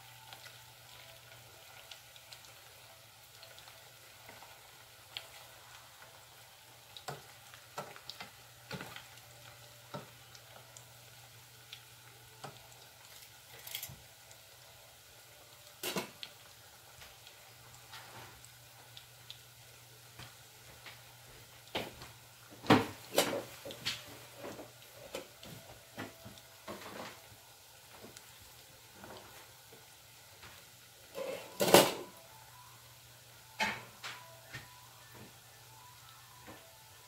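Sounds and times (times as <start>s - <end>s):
oil crackling and popping: 0.0s - 14.4s, 15.4s - 32.1s
metal tongs clattering: 13.2s - 14.0s.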